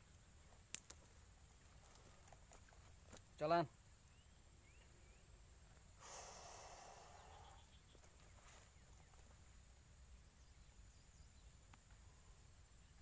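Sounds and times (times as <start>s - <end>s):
faint high chirps: 4.0s - 13.0s.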